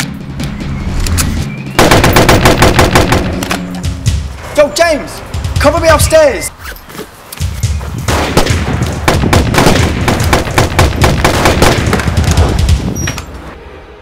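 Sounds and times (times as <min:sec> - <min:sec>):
rapid automatic gunfire: 0:01.8 - 0:03.4, 0:08.4 - 0:12.7.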